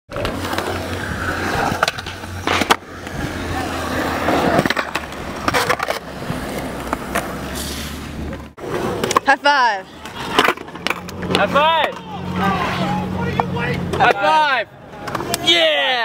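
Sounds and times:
skateboard wheels rolling on concrete: 0:00.1 - 0:16.0
skateboard clacking on concrete: 0:08.7 - 0:12.1.

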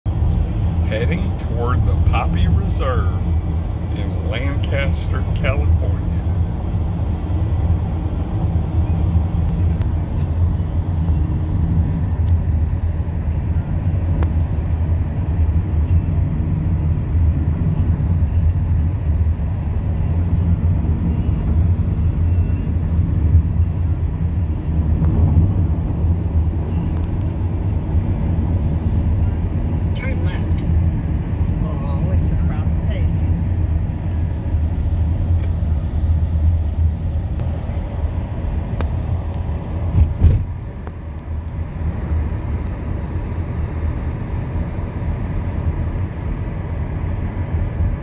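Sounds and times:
car interior engine and road noise: 0:00.1 - 0:48.0.

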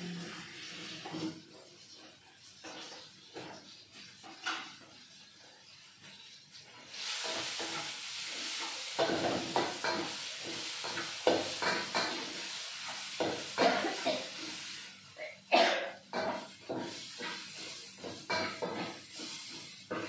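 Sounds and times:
spice paste sizzling in oil: 0:04.9 - 0:15.1, 0:16.1 - 0:20.0
spatula scraping a pan: 0:07.0 - 0:14.8, 0:16.1 - 0:20.0.

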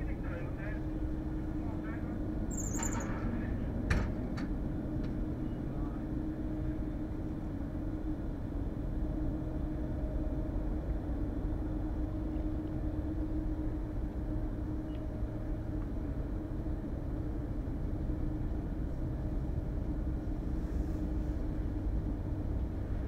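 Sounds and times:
droning hum: 0:00.0 - 0:23.0
low engine rumble: 0:00.0 - 0:23.0.

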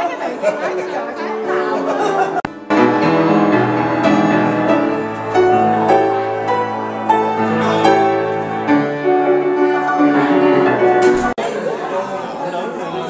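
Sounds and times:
grand piano playing: 0:01.0 - 0:11.4.

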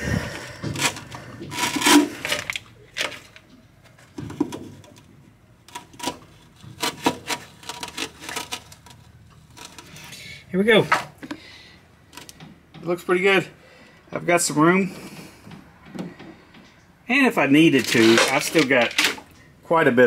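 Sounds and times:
plastic pump and hose handling: 0:00.1 - 0:13.0, 0:17.6 - 0:19.4.

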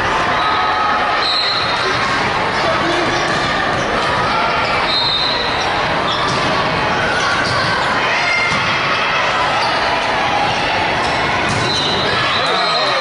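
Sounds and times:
voices echoing in a hall: 0:00.0 - 0:13.0
sneaker squeaks on court floor: 0:04.6 - 0:08.6, 0:11.0 - 0:13.0.

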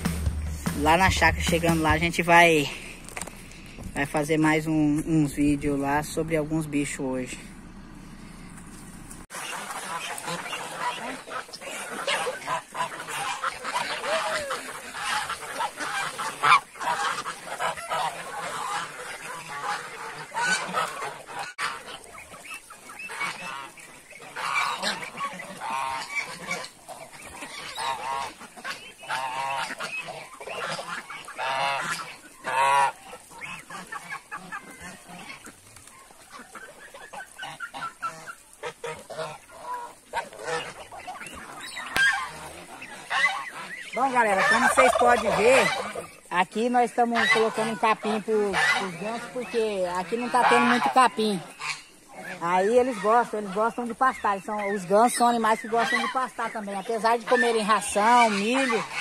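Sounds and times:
geese honking: 0:00.0 - 0:59.0.

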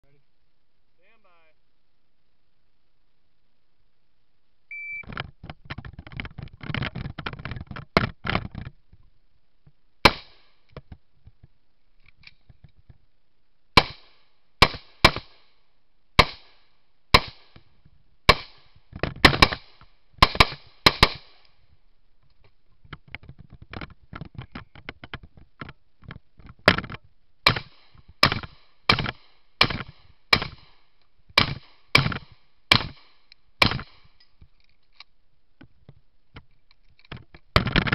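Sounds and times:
short electronic beep: 0:04.7 - 0:05.0
handling noise: 0:05.0 - 0:09.8, 0:18.8 - 0:33.0, 0:33.6 - 0:37.9
gunshots: 0:10.0 - 0:10.5, 0:13.8 - 0:15.5, 0:16.2 - 0:17.6, 0:18.3 - 0:21.4, 0:27.4 - 0:30.8, 0:31.4 - 0:34.1.

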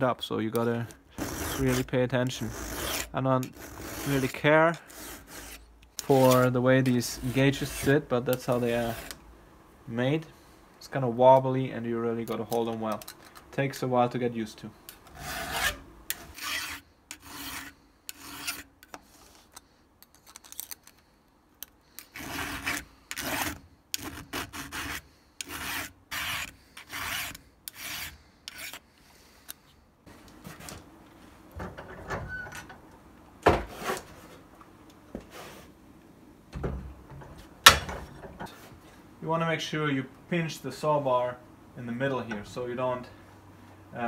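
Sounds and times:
hand file rasping on chain: 0:01.2 - 0:09.2, 0:15.1 - 0:19.4, 0:22.0 - 0:28.8.

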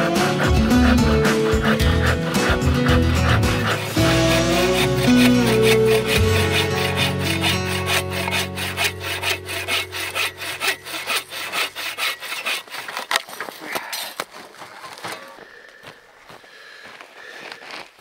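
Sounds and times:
bow saw cutting a log: 0:00.0 - 0:14.0.

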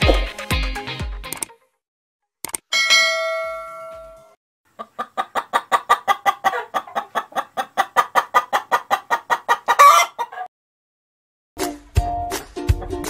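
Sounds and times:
hen cackling: 0:04.7 - 0:10.5
hen clucking: 0:04.7 - 0:10.5.

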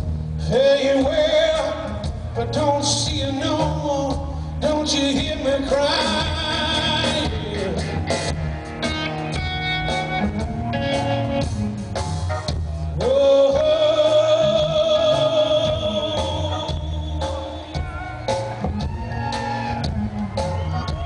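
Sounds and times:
bass guitar: 0:00.0 - 0:21.0
electric guitar: 0:00.0 - 0:21.0
man singing: 0:00.4 - 0:08.4, 0:12.7 - 0:19.8.

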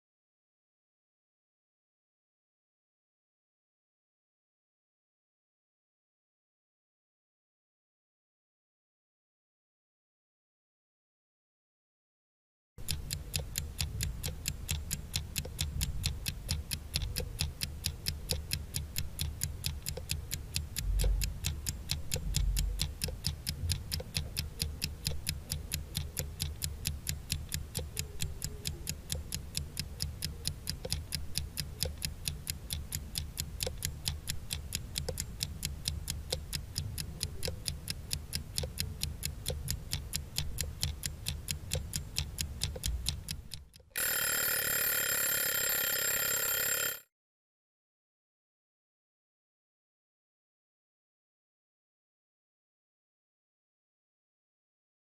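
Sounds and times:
clock ticking: 0:12.8 - 0:47.0.

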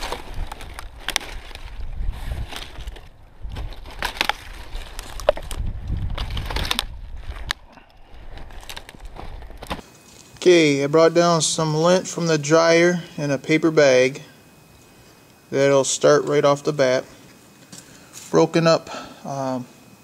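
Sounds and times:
dry branches snapping: 0:00.0 - 0:10.4
brush rustling: 0:00.0 - 0:10.5.

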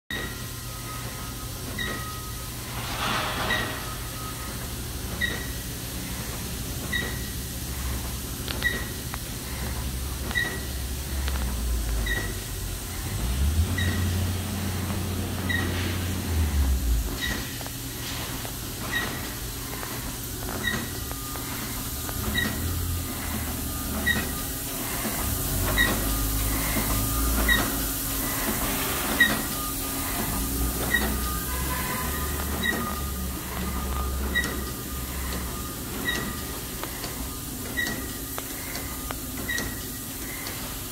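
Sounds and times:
short high electronic beep: 0:00.2 - 0:05.6
machine low rumble and hiss: 0:00.2 - 0:40.9.

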